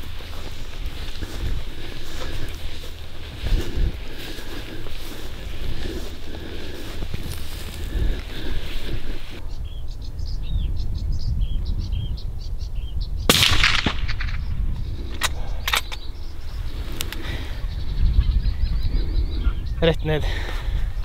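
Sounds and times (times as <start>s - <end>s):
small birds chirping: 0.0s - 13.3s, 14.2s - 21.0s
wind rumble on microphone: 0.0s - 21.0s
gunshot: 13.3s - 14.4s
sharp clicks: 15.1s - 16.1s.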